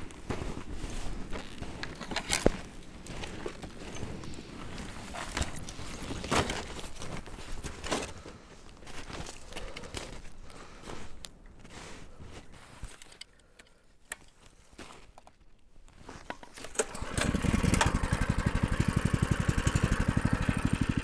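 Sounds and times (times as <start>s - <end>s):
footsteps crunching in snow: 0.0s - 13.2s, 15.8s - 16.3s.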